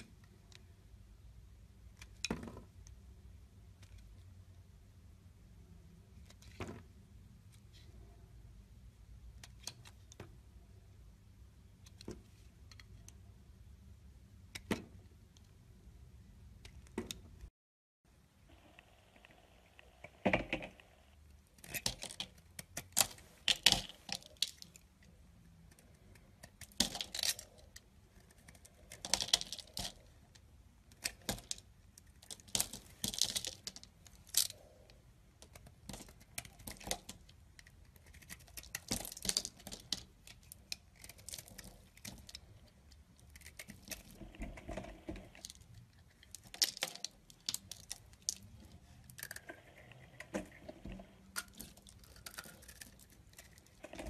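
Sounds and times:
knife shaving soap: 0:30.9 - 0:54.0.

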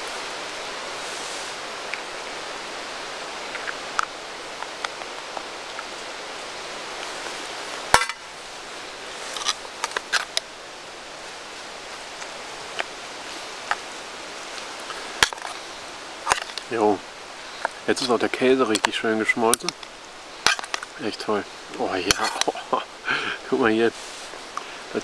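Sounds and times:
steady rushing hiss: 0:00.0 - 0:25.0.

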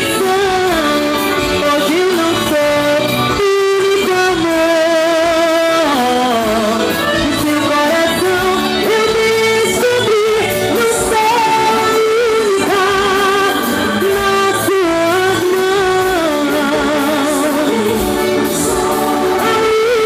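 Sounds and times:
melodic lead line: 0:00.0 - 0:20.0
person singing: 0:00.0 - 0:20.0
steady drum beat: 0:12.6 - 0:20.0.

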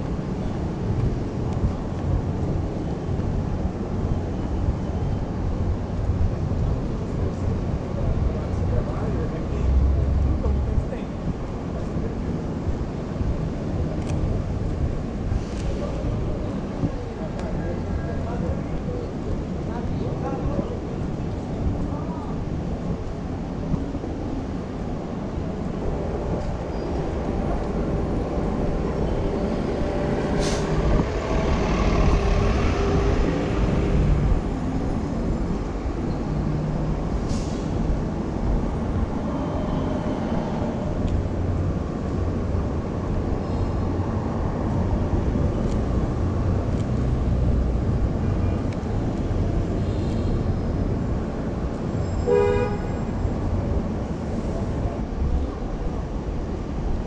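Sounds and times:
traffic rumble: 0:00.0 - 0:57.0
sharp hiss: 0:30.4 - 0:30.8.

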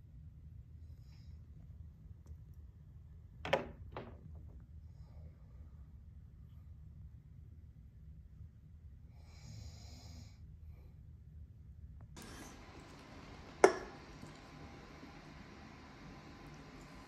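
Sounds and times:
hiss: 0:12.2 - 0:17.0.

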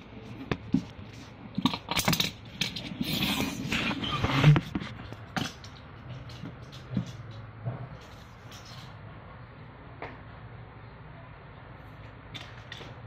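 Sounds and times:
toy car rolling on tiles: 0:01.5 - 0:09.0.

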